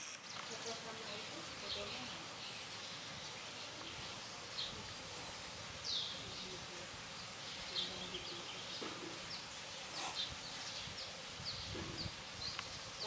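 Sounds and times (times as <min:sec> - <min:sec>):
bird chirping: 0:00.0 - 0:13.0
high insect whine: 0:09.1 - 0:13.0.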